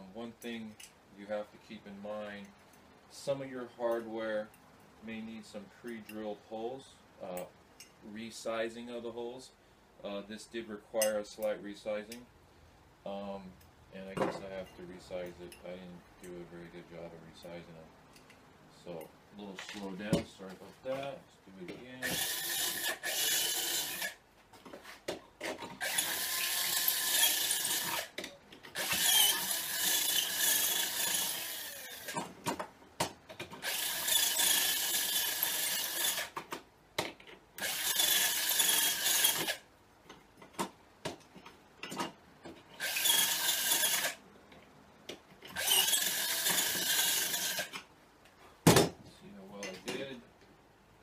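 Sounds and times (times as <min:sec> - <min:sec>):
cordless drill whining: 0:22.0 - 0:24.2, 0:25.8 - 0:28.2, 0:28.8 - 0:32.2, 0:33.6 - 0:36.4, 0:37.6 - 0:39.6, 0:42.8 - 0:44.2, 0:45.5 - 0:47.8.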